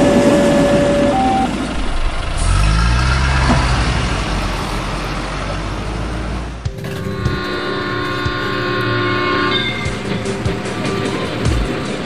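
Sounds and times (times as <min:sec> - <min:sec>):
truck engine running: 0:00.0 - 0:12.0
two-tone beeping: 0:00.4 - 0:01.9.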